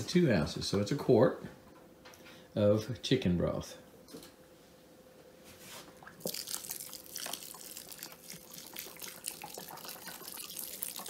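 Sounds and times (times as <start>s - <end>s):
broth pouring onto crumbs: 6.2s - 11.0s.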